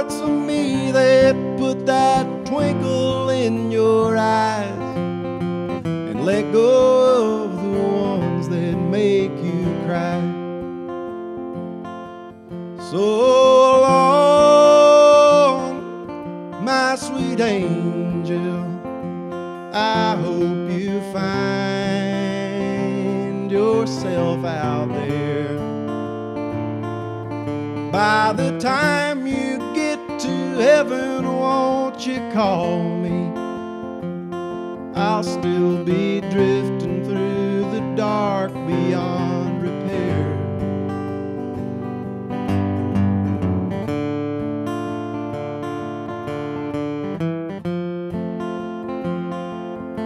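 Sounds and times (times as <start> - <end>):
man singing: 0.0 - 10.9, 12.8 - 26.0, 27.8 - 33.6, 34.8 - 40.8
strummed acoustic guitar: 0.0 - 50.0.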